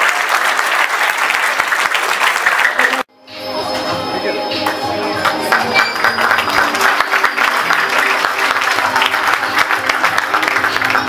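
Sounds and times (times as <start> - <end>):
audience applauding: 0.0 - 3.1, 4.6 - 11.0
music playing: 3.0 - 11.0.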